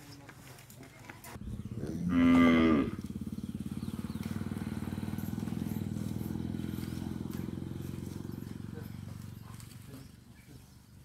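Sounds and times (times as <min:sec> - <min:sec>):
cow mooing: 0:01.7 - 0:03.2.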